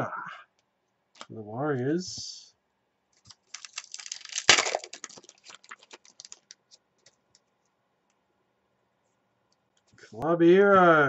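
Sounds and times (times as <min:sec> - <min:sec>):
cards shuffling clicks: 0:03.2 - 0:07.4.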